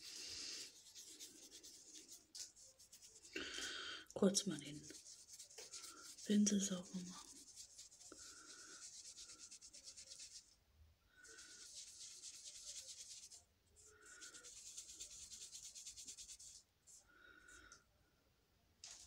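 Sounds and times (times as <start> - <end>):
brush bristles scrubbing: 0.0 - 3.4, 4.6 - 10.6, 11.2 - 17.0.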